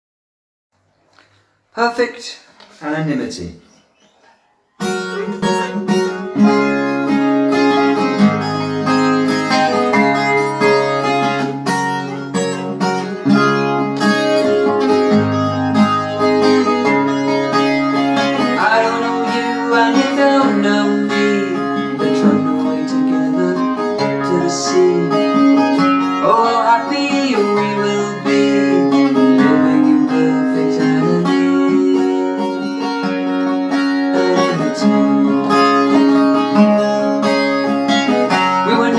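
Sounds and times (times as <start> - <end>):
acoustic guitar playing: 3.4 - 38.9.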